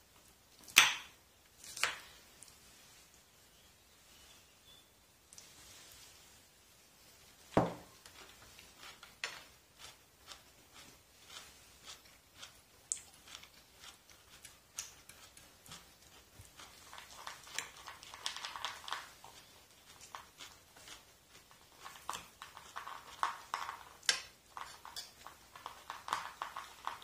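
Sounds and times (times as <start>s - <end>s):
cutlery scraping on ceramic plate: 24.6s - 26.2s.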